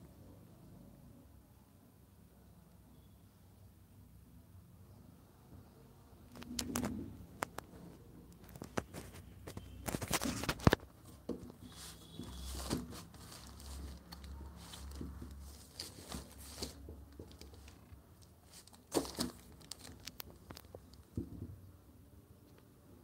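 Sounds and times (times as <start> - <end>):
plastic bag crinkling and rustling: 8.4 - 21.2.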